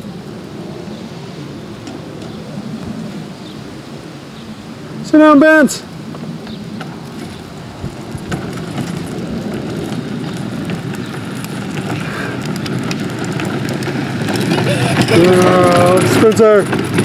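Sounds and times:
toy truck wheels rolling on concrete: 6.1 - 17.0.

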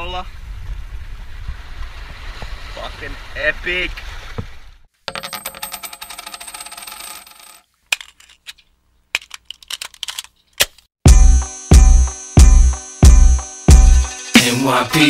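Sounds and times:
heavy bass beats: 11.1 - 14.5.

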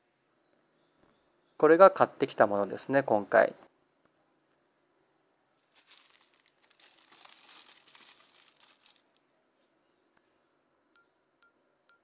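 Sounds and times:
plastic bag crinkling: 5.5 - 9.3.

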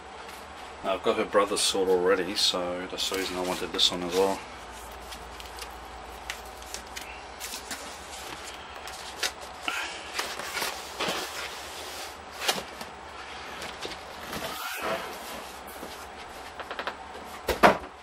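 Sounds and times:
electric fan noise: 0.0 - 18.0
cardboard boxes rustling and scraping: 7.4 - 16.6.

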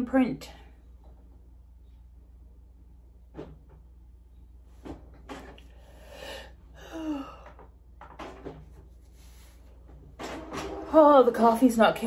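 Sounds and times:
woman yawning: 6.8 - 7.6.

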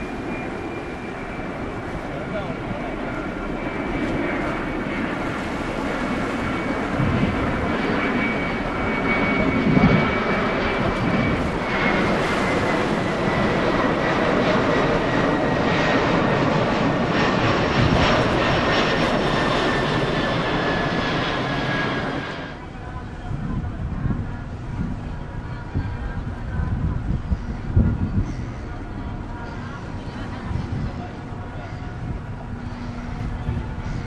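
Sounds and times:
ship diesel engines rumbling: 24.5 - 34.0.

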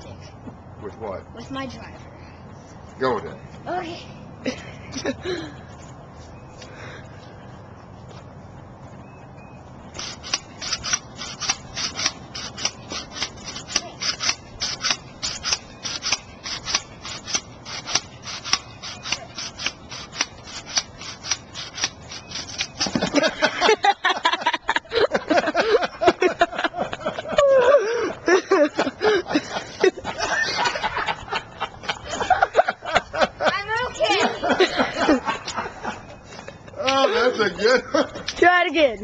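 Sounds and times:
pogo stick spring clicking: 10.0 - 23.2
voices and laughter: 23.0 - 38.4.

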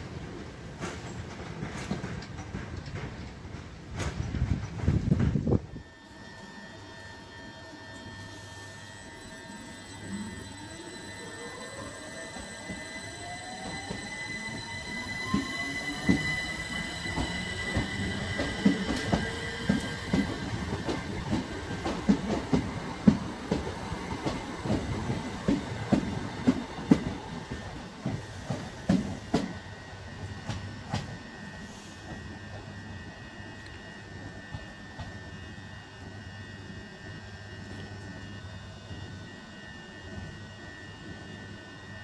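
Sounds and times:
train motor whine: 0.0 - 42.0
wheels clicking over rail joints: 0.7 - 5.3
steady high ring: 5.6 - 42.0.

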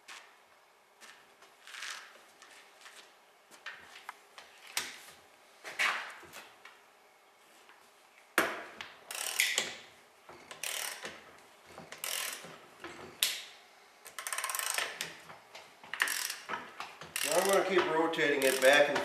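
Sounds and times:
ratchet wrench clicking: 9.1 - 9.7, 10.5 - 11.1, 12.0 - 12.5, 14.1 - 15.2, 16.0 - 16.5, 17.1 - 17.7, 18.3 - 19.0.

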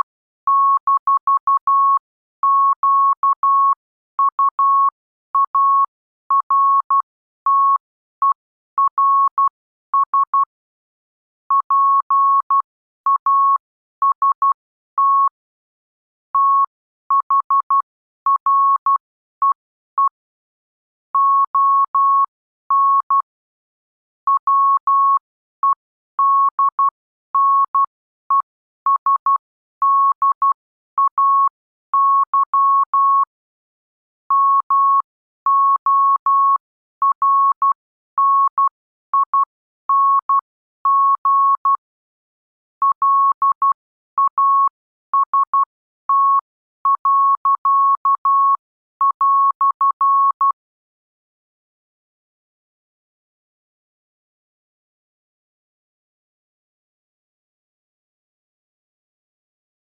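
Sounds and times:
morse code tone: 42.8 - 50.6.

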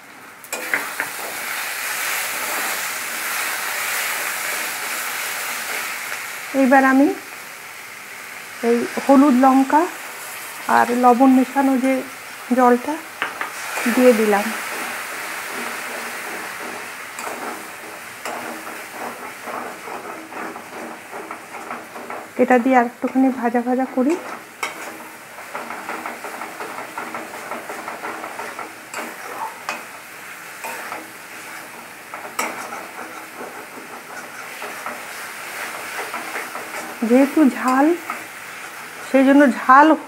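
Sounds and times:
onions sizzling in oil: 0.0 - 40.0
spatula tapping and scraping: 0.5 - 1.4, 13.2 - 39.3.

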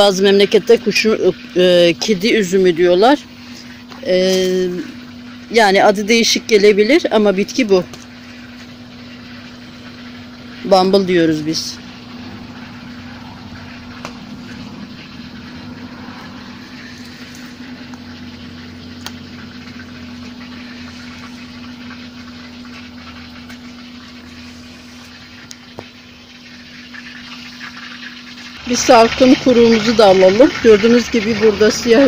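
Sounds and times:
mechanical motor hum: 0.0 - 32.0
plant leaves rustling and clicking: 16.5 - 18.1.

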